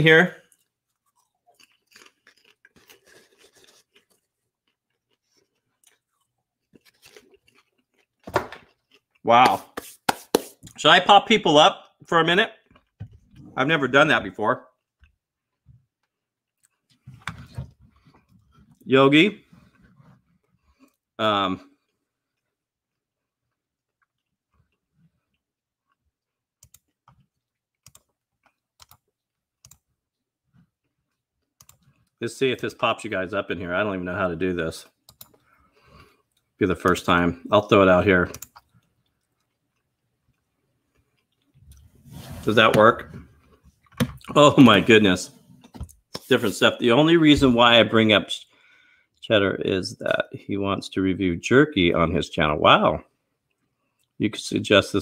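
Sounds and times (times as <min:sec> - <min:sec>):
popcorn crunching and chewing: 0:00.4 - 0:10.8, 0:20.4 - 0:32.2, 0:34.7 - 0:41.9.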